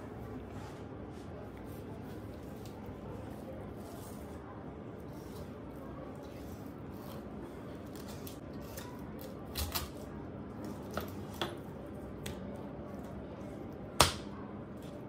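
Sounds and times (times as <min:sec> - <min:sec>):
knife slicing and scraping fish: 0:05.0 - 0:10.0.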